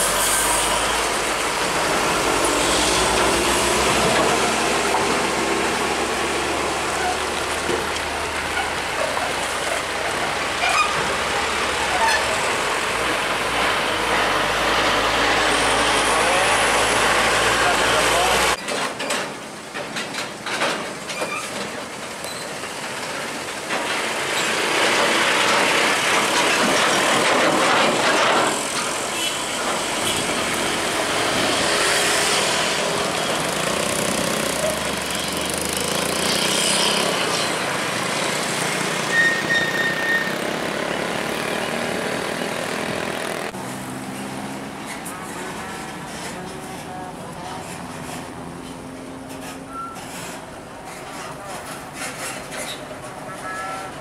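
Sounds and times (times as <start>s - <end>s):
truck diesel engine passing: 0.0s - 18.6s, 28.5s - 50.5s.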